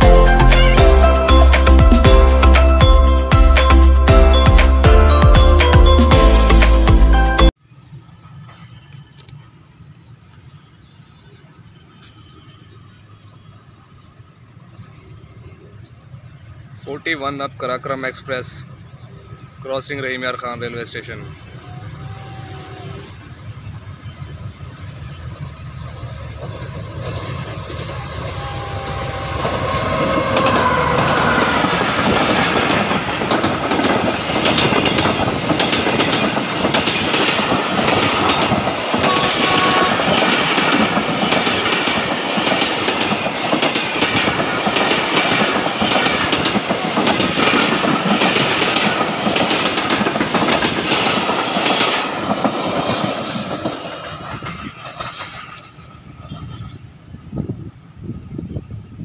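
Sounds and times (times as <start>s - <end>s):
diesel locomotive passing: 0.0s - 59.0s
train wheels clickety-clack: 25.8s - 56.8s.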